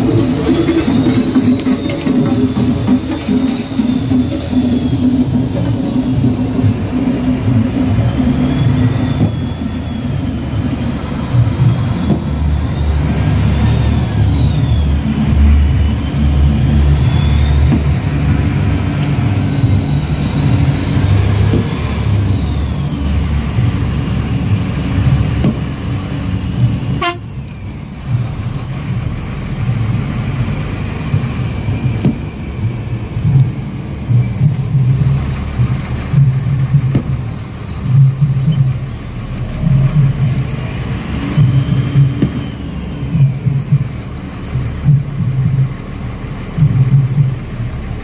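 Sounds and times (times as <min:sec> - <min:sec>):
vehicle engines rumbling: 0:00.0 - 0:48.0
car horns tooting: 0:26.9 - 0:27.5.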